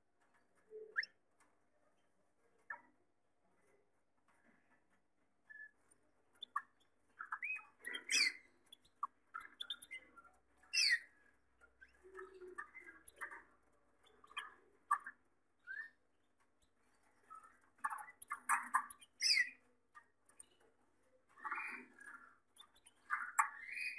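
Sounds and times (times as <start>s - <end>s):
canaries chirping: 0.2s - 1.2s, 5.4s - 20.6s, 21.3s - 23.9s.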